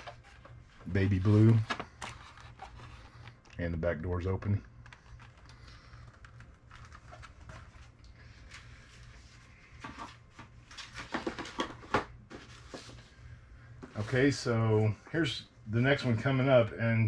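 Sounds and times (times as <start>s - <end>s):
cardboard boxes rustling: 0.0s - 3.1s
steady low hum: 0.0s - 17.0s.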